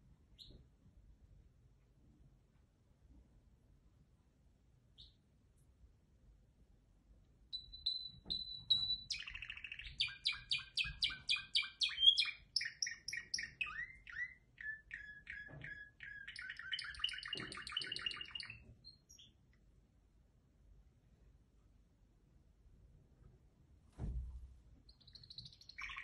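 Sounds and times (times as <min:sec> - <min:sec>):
canary singing: 0:07.5 - 0:19.4, 0:24.9 - 0:26.0.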